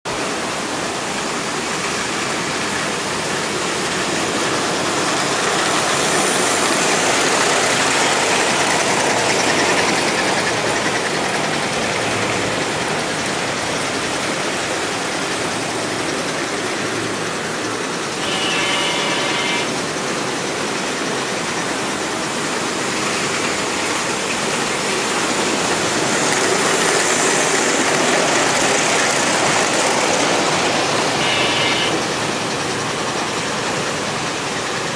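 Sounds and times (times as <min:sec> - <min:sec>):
model trains running on rails: 0:00.1 - 0:34.9
short multi-pitch tone: 0:18.2 - 0:19.7, 0:31.2 - 0:32.0.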